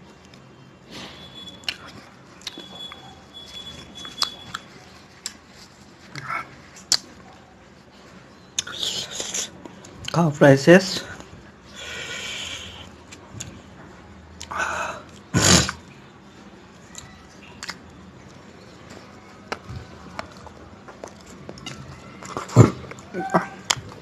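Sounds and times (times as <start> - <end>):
bread rustling in curry: 0.0 - 10.0
chewing and lip smacks: 1.6 - 5.5, 6.1 - 7.4, 8.6 - 10.2, 16.9 - 18.4, 19.5 - 24.0
wet bite: 17.6 - 17.8.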